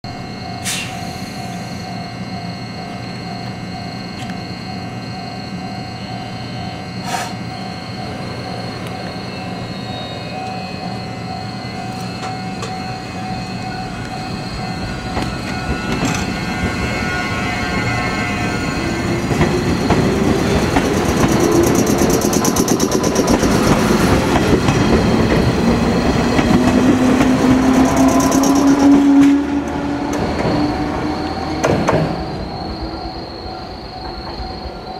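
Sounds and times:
electric train motor hum: 2.7 - 33.1
wheels clacking over rail joints: 19.2 - 30.7.

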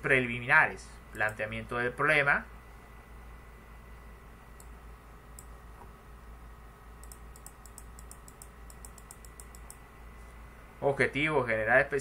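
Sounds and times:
computer mouse clicking: 4.6 - 4.8, 7.0 - 9.8.

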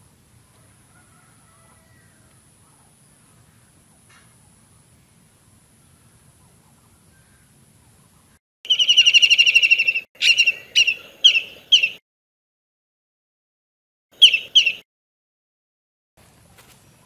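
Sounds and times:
faint outdoor background: 0.0 - 12.0, 14.1 - 14.9, 16.2 - 17.0
bird trilling: 8.7 - 12.0, 14.2 - 14.8
sharp bird calls: 8.7 - 12.0, 14.2 - 14.8.

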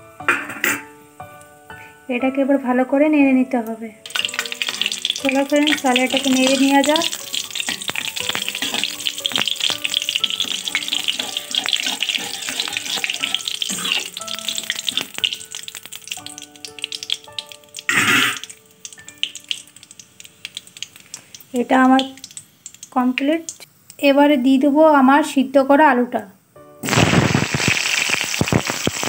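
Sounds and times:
spices sizzling in hot oil: 4.0 - 25.4, 26.8 - 29.0
metal spatula scraping: 4.3 - 15.8.

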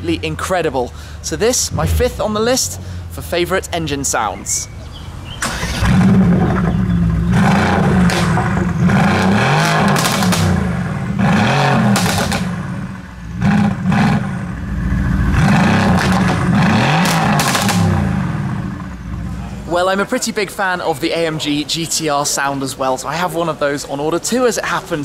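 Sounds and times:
exhaust cracks: 0.9 - 4.2, 5.4 - 19.4
car engine revving: 1.4 - 4.1, 5.2 - 19.4.

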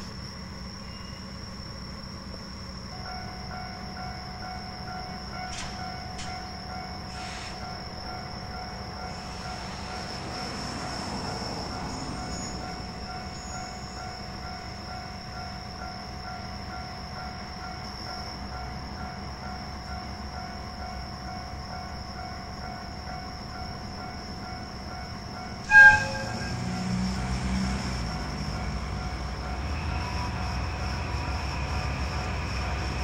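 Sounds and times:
faint whines: 0.0 - 33.0
locomotive idling rumble: 0.0 - 33.0
locomotive horn blast: 25.6 - 27.1.

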